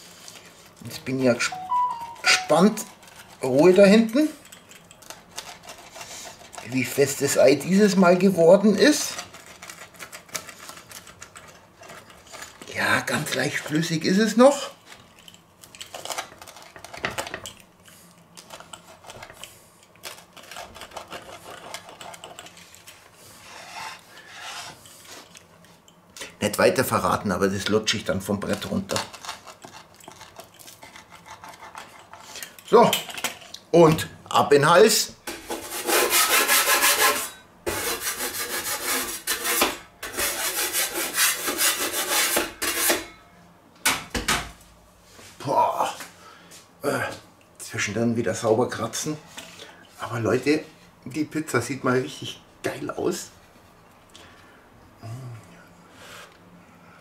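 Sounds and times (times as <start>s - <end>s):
pizza wheel crunching through crust: 8.6s - 24.4s, 28.2s - 32.5s.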